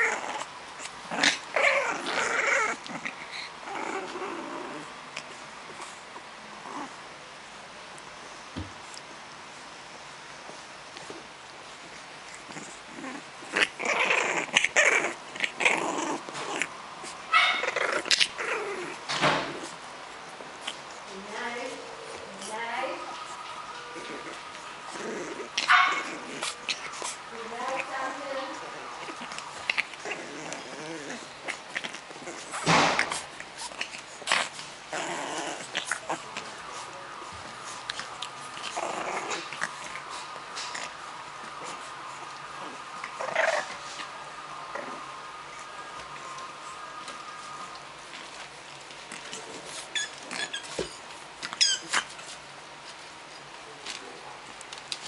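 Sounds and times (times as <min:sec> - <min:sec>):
puppies growling and yipping: 0:00.0 - 0:07.1, 0:11.0 - 0:53.5
puppy high cry: 0:01.1 - 0:03.1, 0:12.6 - 0:16.7, 0:17.3 - 0:19.0, 0:23.9 - 0:27.2, 0:51.6 - 0:52.2.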